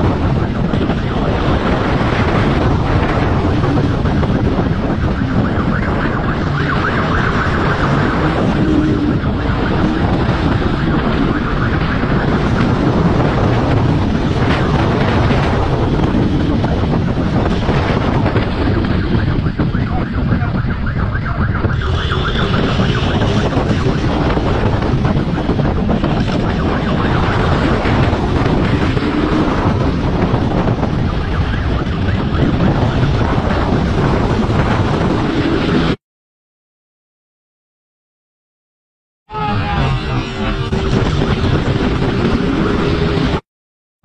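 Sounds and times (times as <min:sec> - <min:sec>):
wind buffeting microphone: 0:00.0 - 0:36.0, 0:39.4 - 0:43.4
brief high tone: 0:39.3 - 0:41.3.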